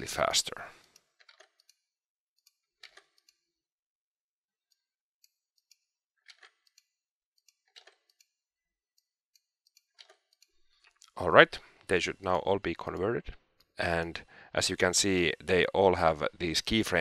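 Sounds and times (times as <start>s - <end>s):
computer mouse clicks: 2.4s - 3.4s, 4.7s - 8.3s.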